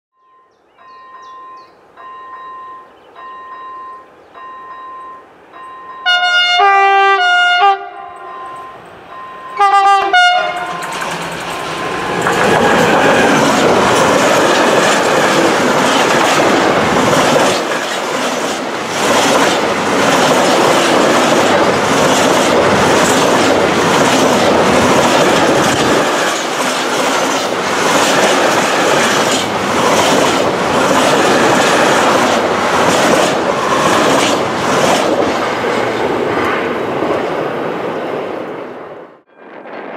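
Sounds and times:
faint beeping tone: 0.2 - 6.1, 8.0 - 9.6
locomotive horn: 6.0 - 8.9, 9.5 - 10.9
train rumble: 8.2 - 39.9
wagons clattering over rail joints: 10.5 - 35.4.

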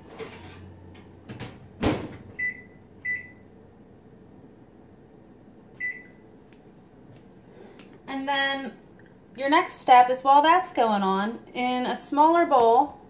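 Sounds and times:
oven door shutting: 0.0 - 2.4.

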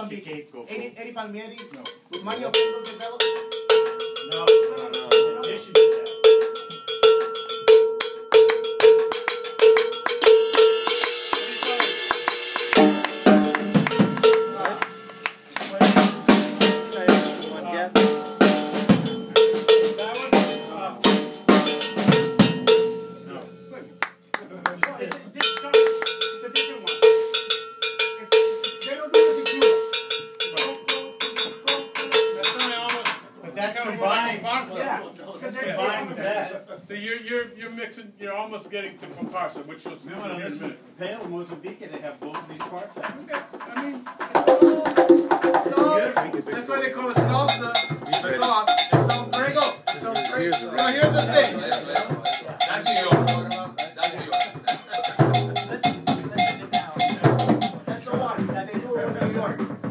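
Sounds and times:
drums and hand percussion: 1.3 - 33.8, 38.5 - 59.9
cowbell struck steadily: 1.5 - 24.3, 25.3 - 33.2, 47.2 - 59.1
cymbals: 1.6 - 24.3, 25.4 - 33.4, 47.1 - 58.0.

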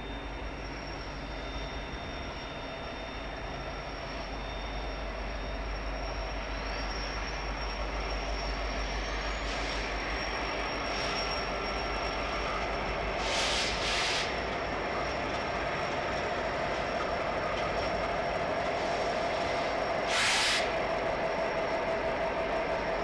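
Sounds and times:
diesel locomotive engine: 0.0 - 23.0
rail noise: 0.0 - 23.0
short air hisses: 13.2 - 14.4, 18.8 - 20.8.

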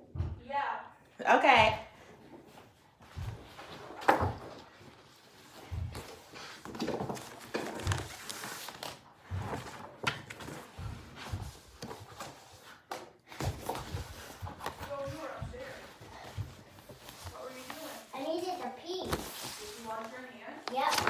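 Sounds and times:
rustling: 2.4 - 21.0.

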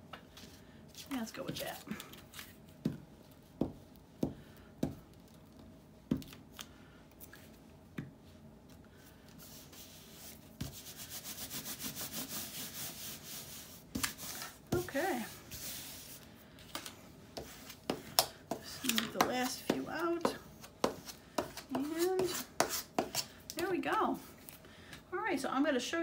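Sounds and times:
hand rubbing paper flat: 9.4 - 16.3.

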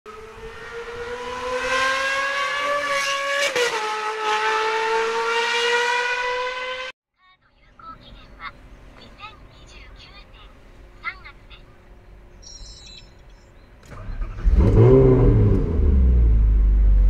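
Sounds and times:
sports car engine accelerating: 0.1 - 6.9, 13.8 - 17.0.

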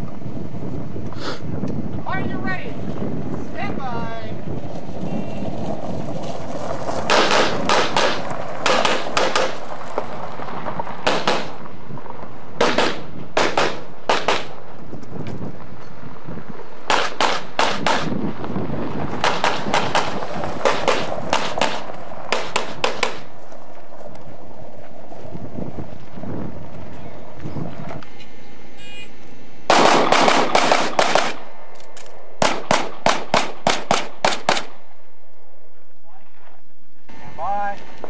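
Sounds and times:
pistol shots: 7.1 - 9.6, 11.0 - 11.6, 12.6 - 14.6, 16.9 - 18.1, 19.2 - 23.3, 29.7 - 31.5, 32.4 - 34.8.

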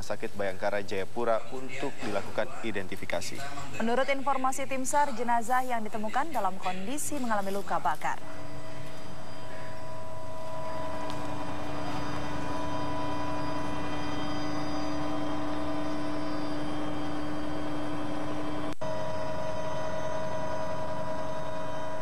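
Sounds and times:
aircraft cabin drone: 7.7 - 22.0.

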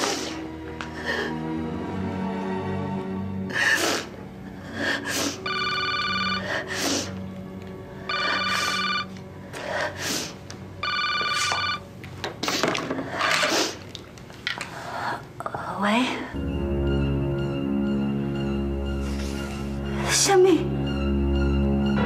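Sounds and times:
background music: 0.0 - 13.9, 15.0 - 22.0
telephone electronic trilling ring: 5.4 - 6.6, 8.1 - 9.1, 10.8 - 11.8.

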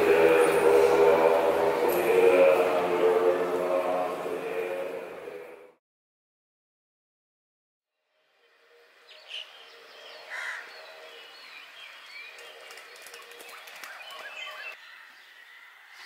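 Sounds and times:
birds chirping: 0.0 - 4.8, 8.7 - 16.0.

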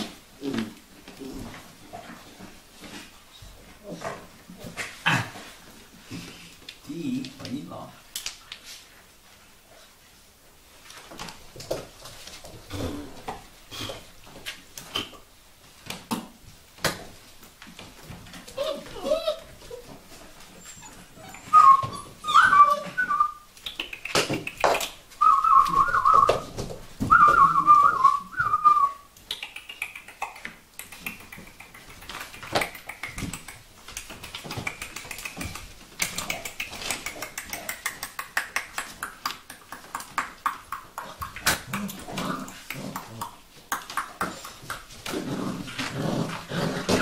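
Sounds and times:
puppies whining: 18.4 - 23.5.

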